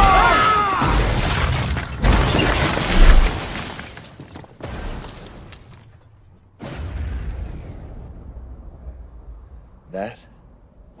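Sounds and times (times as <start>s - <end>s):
crash and breaking rock: 0.0s - 6.1s
falling debris: 0.0s - 6.2s
heavy booms: 6.6s - 10.8s.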